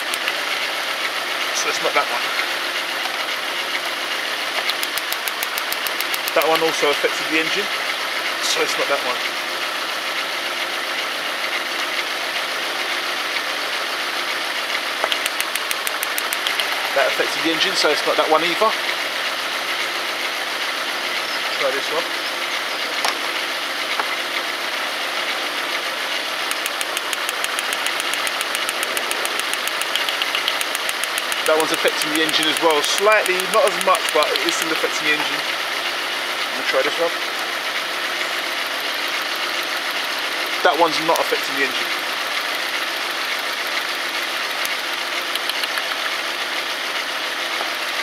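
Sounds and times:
rapid even ticking: 0.0 - 0.6, 4.6 - 7.5, 14.8 - 17.9, 26.4 - 46.4
engine idling with misfire: 0.0 - 48.0.

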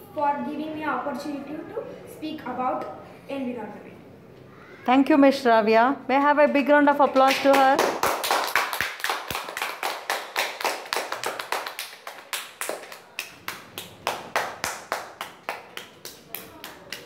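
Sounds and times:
hands clapping: 7.1 - 17.0.

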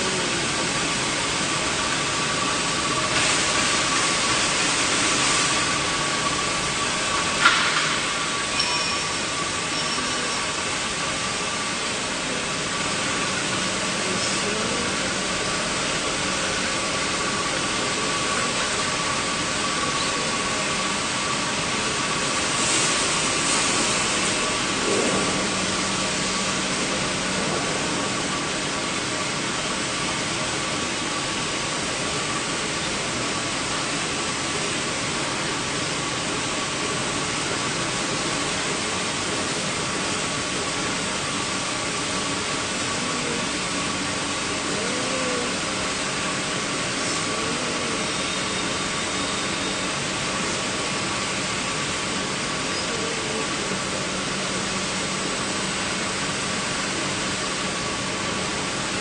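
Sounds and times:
polishing machine hissing and humming: 0.0 - 59.0.

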